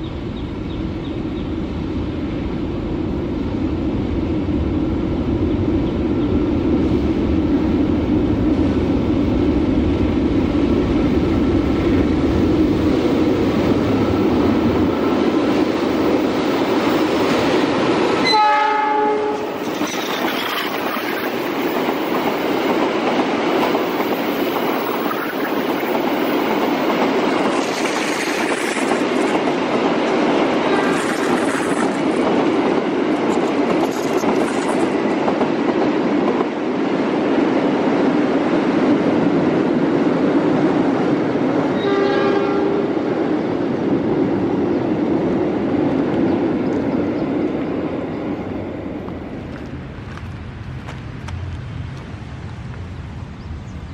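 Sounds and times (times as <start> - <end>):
train horn: 18.2 - 19.6, 41.8 - 43.0
train wheels clattering on rails: 19.4 - 36.7.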